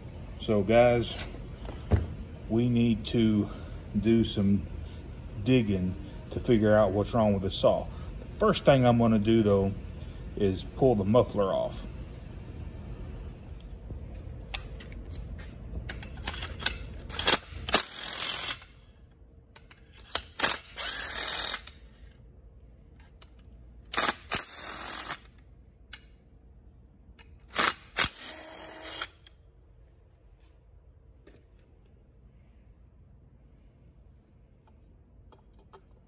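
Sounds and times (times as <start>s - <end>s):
cordless drill running: 20.4s - 21.7s, 24.0s - 25.3s, 27.6s - 29.2s
tool clicking and knocking on bolts: 34.6s - 36.0s.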